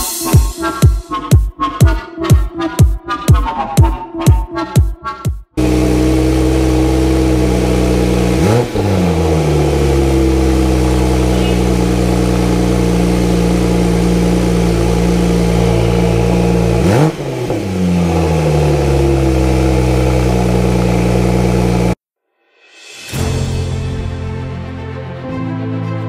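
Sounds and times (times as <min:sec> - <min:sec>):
car engine idling and revving: 0:05.6 - 0:22.0.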